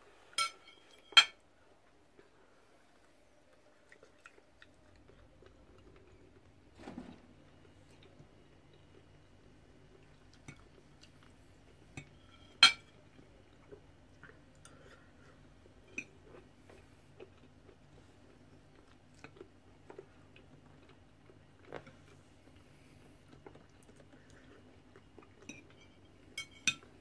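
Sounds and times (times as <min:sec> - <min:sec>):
knife and fork clinking on plate: 0:00.4 - 0:01.4, 0:12.0 - 0:12.9
chewing: 0:02.1 - 0:06.5, 0:09.9 - 0:11.4, 0:13.1 - 0:26.0.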